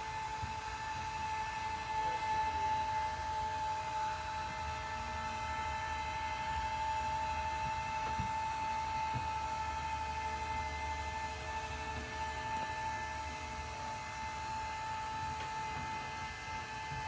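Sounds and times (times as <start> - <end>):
lift motor whine: 0.0 - 17.0.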